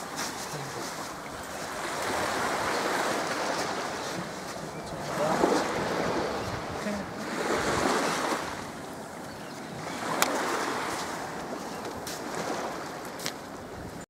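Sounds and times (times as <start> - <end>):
small waves on pebbly shore: 0.0 - 13.8
wind buffeting microphone: 0.0 - 14.0.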